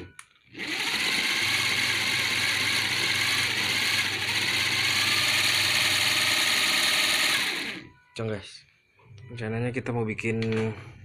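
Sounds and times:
small electric motors whirring: 0.5s - 7.9s.

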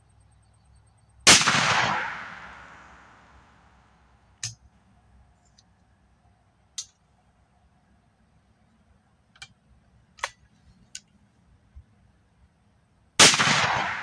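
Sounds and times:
shotgun shot with echo: 1.3s - 3.3s, 13.2s - 14.0s.

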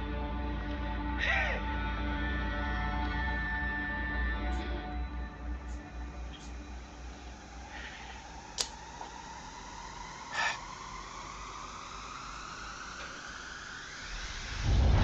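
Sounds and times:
faint rising tone: 2.1s - 15.0s
sharp click: 8.6s - 8.8s.

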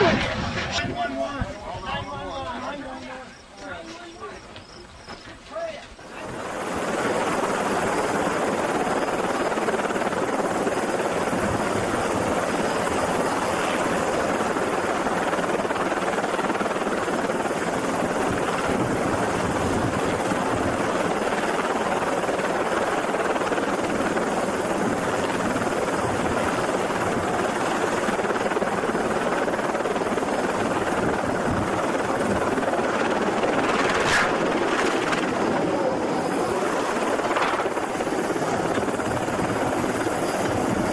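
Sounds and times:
helicopter rotor and engine: 0.0s - 40.9s.

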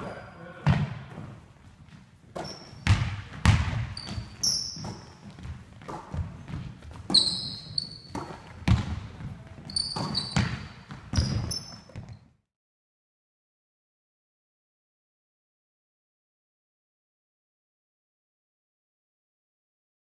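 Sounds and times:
sneakers squeaking: 0.0s - 12.4s
basketball bouncing on wooden floor: 0.6s - 12.3s.

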